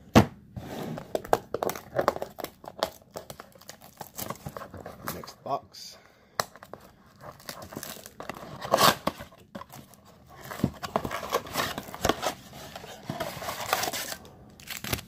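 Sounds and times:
shrink wrap crinkling and tearing: 1.5 - 5.4, 6.6 - 15.0
cardboard box rustling: 6.7 - 15.0.

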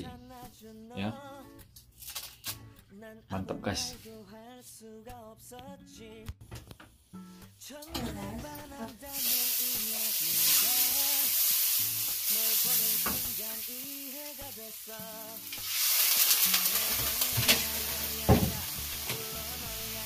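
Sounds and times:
food sizzling in a pan: 8.9 - 20.0.

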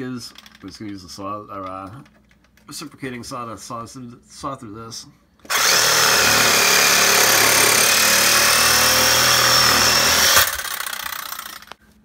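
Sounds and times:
reciprocating saw cutting pipe: 5.5 - 11.7.

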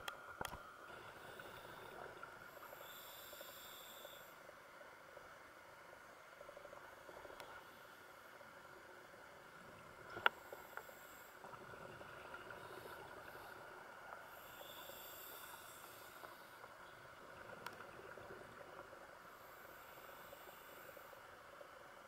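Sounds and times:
steady underwater hiss: 0.0 - 22.0
scuba regulator breathing: 12.5 - 16.7.

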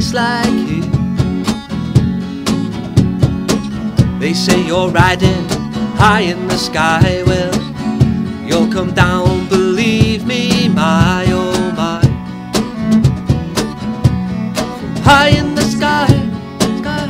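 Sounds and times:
bass guitar: 0.0 - 17.0
strummed acoustic guitars: 0.0 - 17.0
bowed cello melody: 8.4 - 16.6.

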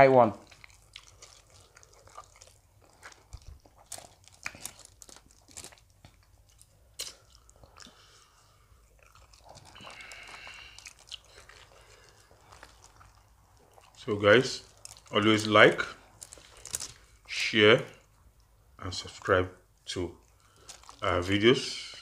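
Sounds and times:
chewing and crunching food: 0.0 - 22.0.

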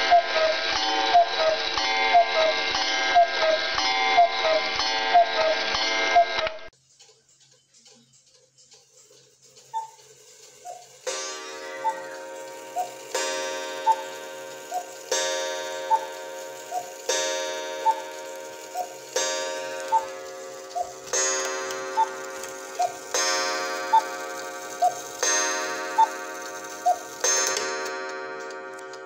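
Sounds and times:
two-note cuckoo call: 10.6 - 29.0
clock gong strike: 11.1 - 29.0.

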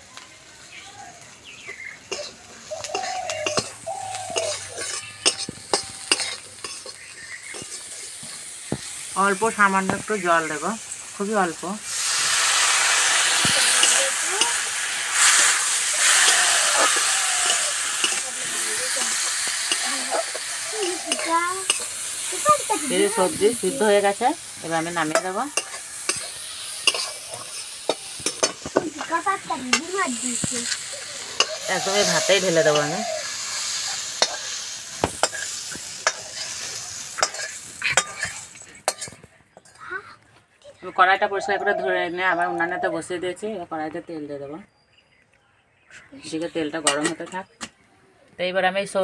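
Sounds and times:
water sizzling into steam: 0.0 - 39.1
metal spatula scraping wok: 2.0 - 39.8.

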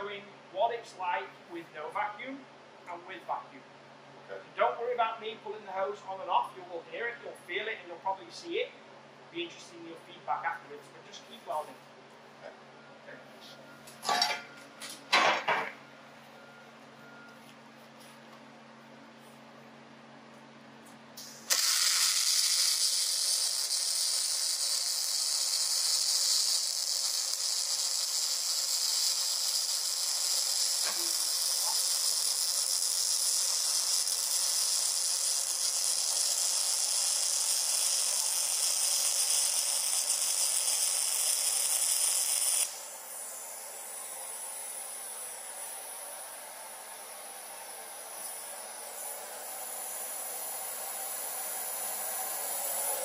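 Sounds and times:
welding arc sizzling and crackling: 20.8 - 53.0.

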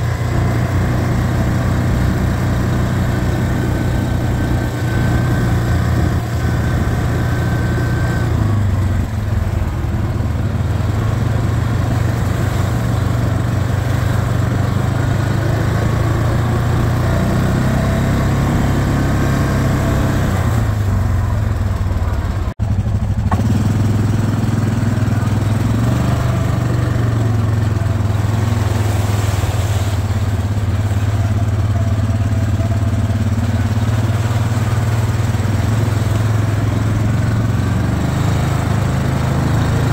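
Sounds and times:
atv engine droning: 0.0 - 39.9.

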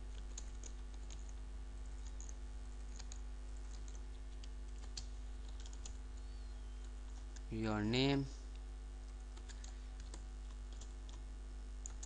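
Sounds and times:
steady low hum: 0.0 - 12.0
keyboard typing: 0.1 - 7.5, 9.1 - 11.2.

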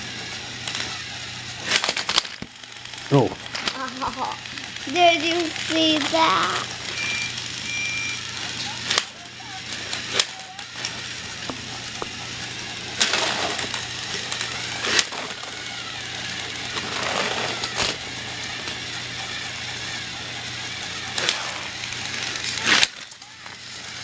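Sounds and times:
toy train motor whirring: 0.0 - 24.0
wheels clicking on track: 2.8 - 7.4.

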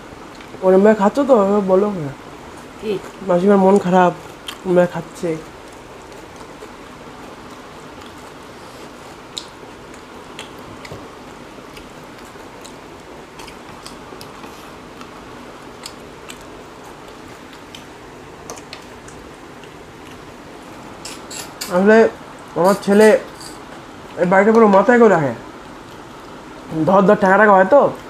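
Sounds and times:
fingers squishing food: 2.3 - 22.6
chewing: 2.4 - 21.7, 25.6 - 26.8.

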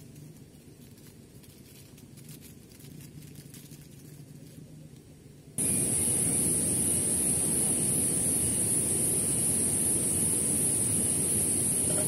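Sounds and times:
high-pitched hiss: 5.6 - 12.0.

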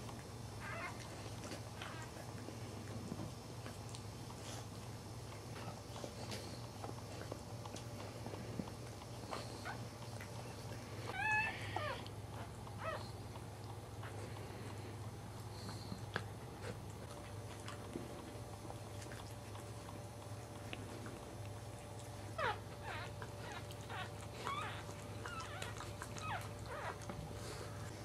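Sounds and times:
steady low hum: 0.0 - 28.0
puppies squeaking: 0.6 - 1.0, 11.1 - 13.0, 22.4 - 27.1.

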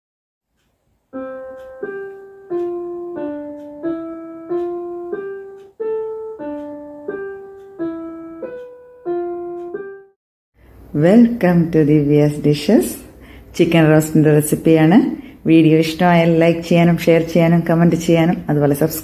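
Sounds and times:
slow piano melody: 0.8 - 10.2.

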